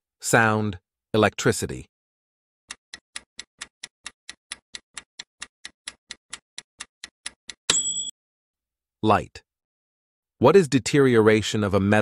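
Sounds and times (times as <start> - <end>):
clock-like timer ticking: 2.7 - 7.8.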